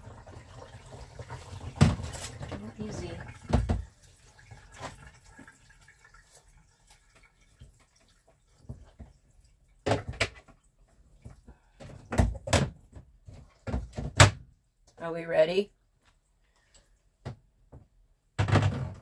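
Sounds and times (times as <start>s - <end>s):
water drips: 0.0s - 9.8s.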